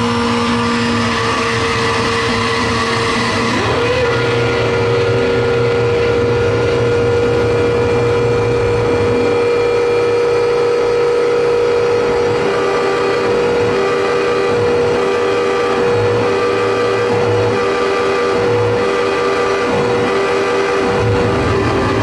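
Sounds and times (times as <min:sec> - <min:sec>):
distorted noise music: 0:00.0 - 0:22.0
held drone tone: 0:00.0 - 0:22.0
low stuttering tone: 0:00.0 - 0:22.0
low pulsing rumble: 0:20.8 - 0:22.0.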